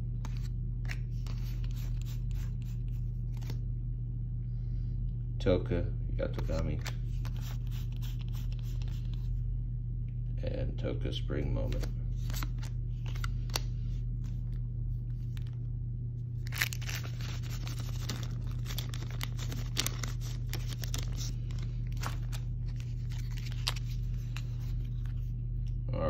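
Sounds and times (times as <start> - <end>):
steady low hum: 0.0 - 26.0
trading cards scraping and sliding: 0.2 - 3.6, 6.4 - 9.3, 11.6 - 14.5, 16.5 - 25.3.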